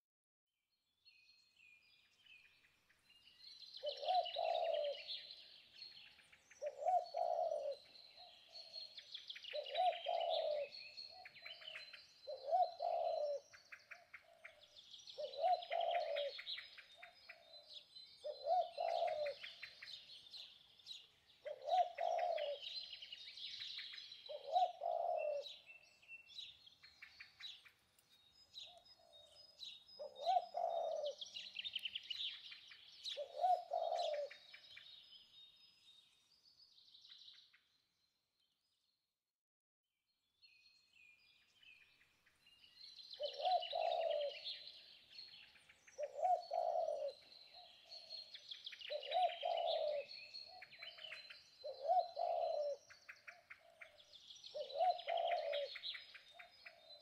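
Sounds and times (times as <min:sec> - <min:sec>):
small birds twittering: 0:01.0 - 0:39.0, 0:40.3 - 0:57.0
dove cooing: 0:03.8 - 0:05.5, 0:06.6 - 0:08.8, 0:09.5 - 0:14.6, 0:15.2 - 0:20.0, 0:21.4 - 0:23.0, 0:24.3 - 0:25.6, 0:30.0 - 0:32.3, 0:33.0 - 0:34.6, 0:43.2 - 0:44.7, 0:46.0 - 0:48.3, 0:48.9 - 0:57.0.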